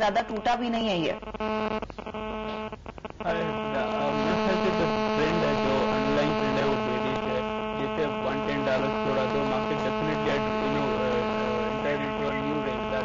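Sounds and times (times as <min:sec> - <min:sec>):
loud electrical hum: 0:00.0 - 0:13.0
man's voice faintly audible: 0:03.2 - 0:13.0.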